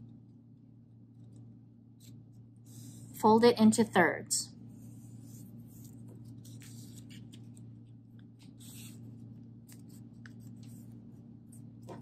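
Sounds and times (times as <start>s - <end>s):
paper rustling and scraping: 4.8s - 11.1s.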